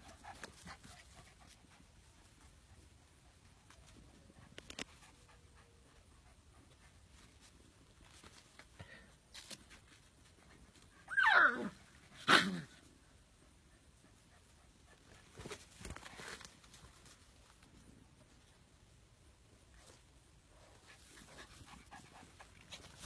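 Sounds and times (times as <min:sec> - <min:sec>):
puppy yelping: 0:11.1 - 0:12.7.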